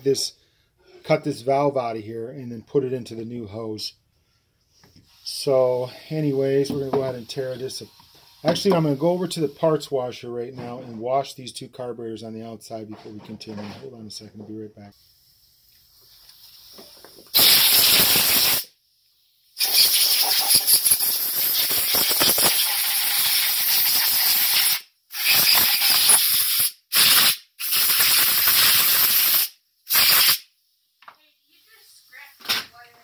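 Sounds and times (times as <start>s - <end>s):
compressed-air blow gun hissing: 15.0s - 18.8s, 19.5s - 30.5s.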